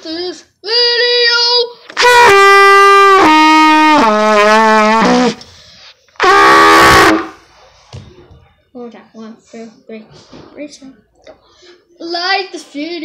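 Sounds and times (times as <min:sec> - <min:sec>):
trumpet playing long notes: 0:02.0 - 0:05.4, 0:06.2 - 0:07.4.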